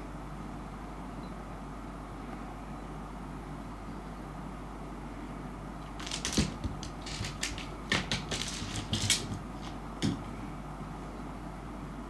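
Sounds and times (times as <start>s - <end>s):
steady low hum: 0.0s - 12.0s
cat paws scrabbling on boards: 5.9s - 10.4s
seed clicking across wooden floor: 5.9s - 10.4s.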